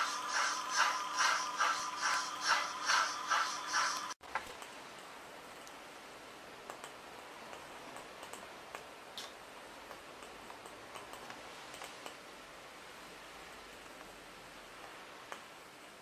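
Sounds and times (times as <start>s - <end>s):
model train wheels clicking: 0.0s - 4.2s
steady hiss: 0.0s - 4.2s.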